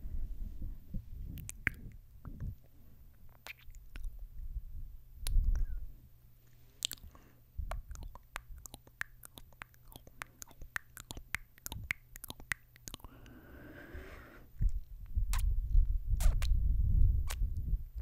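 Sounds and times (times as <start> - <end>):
wet kissing and lip smacks: 3.3 - 4.1, 6.8 - 7.1, 7.7 - 13.1, 15.3 - 15.5, 16.2 - 16.6, 17.2 - 17.4.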